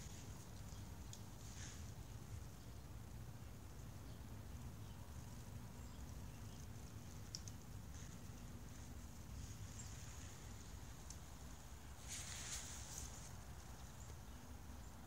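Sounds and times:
faint hum: 0.0s - 15.0s
light ticks: 0.2s - 1.6s, 5.9s - 8.5s, 10.9s - 11.3s.

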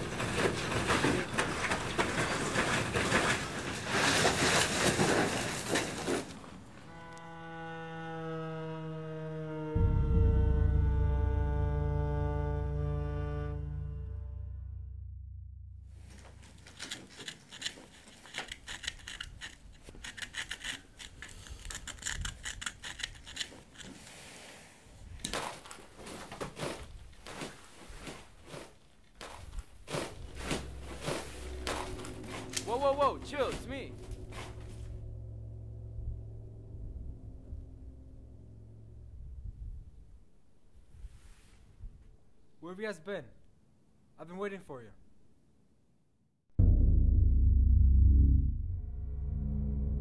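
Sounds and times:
hands sifting through gravel rubble: 0.0s - 6.5s, 25.4s - 34.8s.

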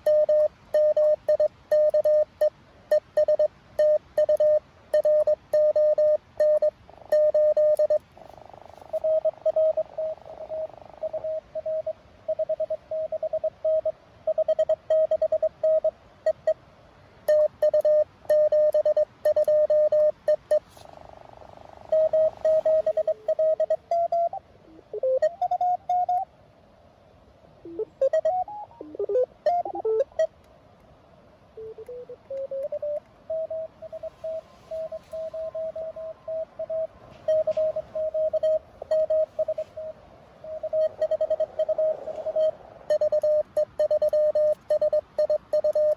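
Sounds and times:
morse code tone: 0.0s - 8.0s, 8.9s - 16.6s, 17.3s - 20.8s, 21.8s - 26.2s, 27.7s - 30.3s, 31.6s - 45.9s
radio receiver hiss: 17.3s - 24.3s, 31.6s - 45.9s.

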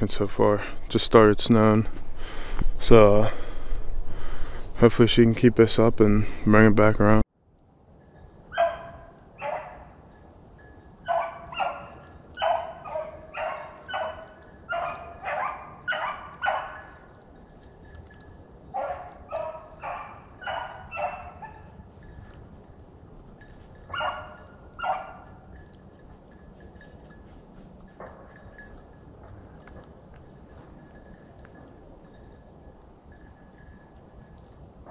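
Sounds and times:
dog baying: 8.5s - 10.0s, 11.0s - 17.3s, 18.7s - 21.8s, 23.6s - 25.5s.

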